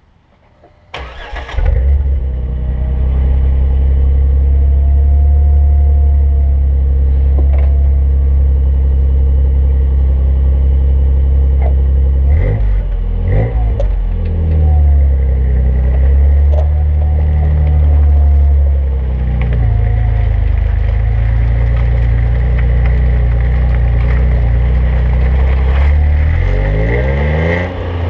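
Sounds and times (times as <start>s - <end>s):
car engine starting and idling: 0.9s - 28.0s
car engine revving: 11.0s - 28.0s.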